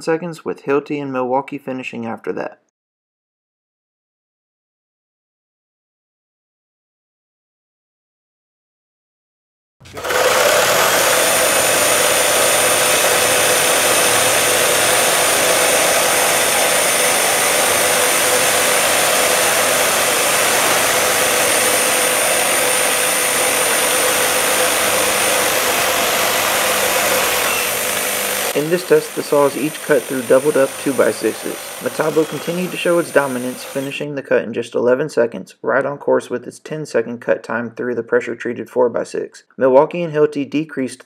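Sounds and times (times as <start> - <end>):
reciprocating saw cutting wood: 9.8 - 33.9.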